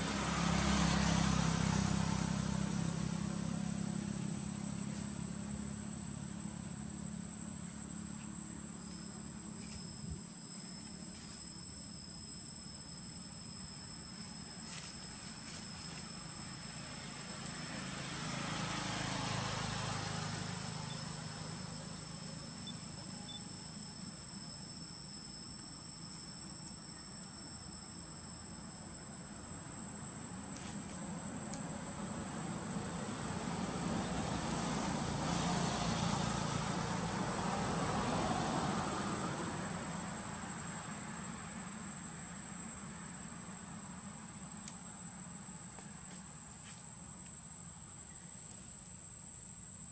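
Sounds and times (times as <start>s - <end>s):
distant engine passing: 0.0s - 9.8s, 14.0s - 25.4s, 29.7s - 44.6s
insects droning: 0.0s - 49.9s
thin high-pitched whine: 6.4s - 17.7s.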